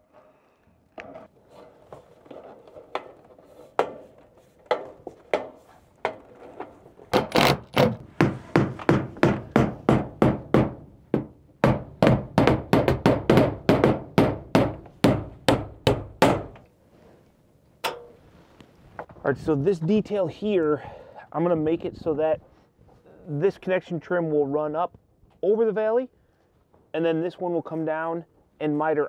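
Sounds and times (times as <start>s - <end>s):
hammer striking steel trim: 17.8s - 18.2s.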